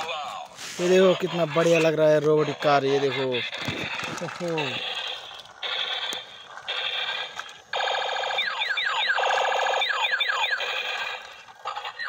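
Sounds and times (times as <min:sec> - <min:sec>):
toy electronic music: 0:00.9 - 0:12.0
falling laser-like zaps: 0:04.6 - 0:12.0.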